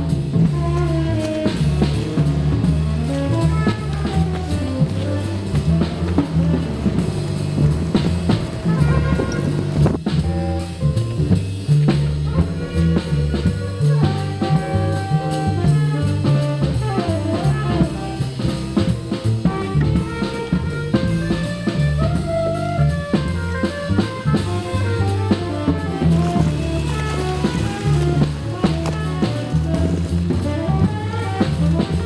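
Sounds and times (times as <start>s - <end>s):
horn melody: 0.0s - 10.8s, 12.1s - 32.0s
bass line: 0.0s - 32.0s
drum kit beat: 0.0s - 32.0s
jazz music: 0.0s - 32.0s.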